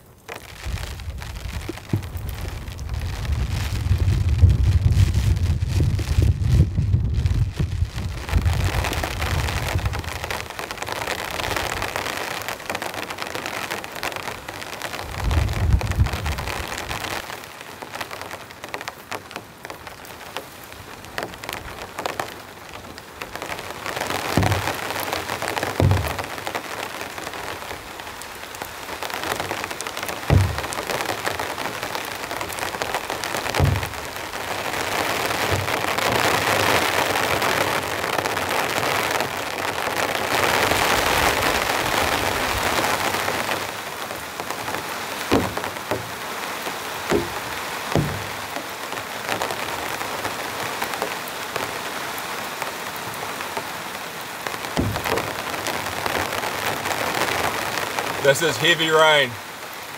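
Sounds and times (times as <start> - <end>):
heavy rain on a tarp: 0.0 - 59.9
heavy thuds: 1.7 - 2.5, 24.4 - 24.8, 25.8 - 26.3, 30.3 - 30.9, 33.5 - 34.3, 35.4 - 36.3, 45.3 - 46.2, 47.1 - 48.6, 54.8 - 55.5.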